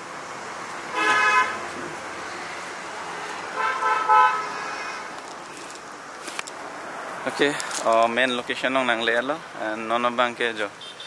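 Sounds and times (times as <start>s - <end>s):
car horn honking: 0.9s - 1.7s, 3.5s - 4.5s, 10.8s - 11.0s.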